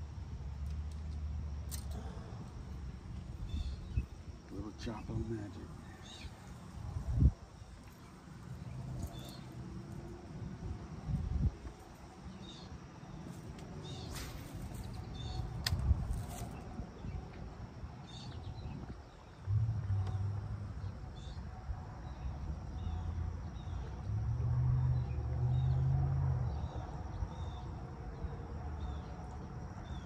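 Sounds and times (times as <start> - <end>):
low rumble: 18.3 - 26.7.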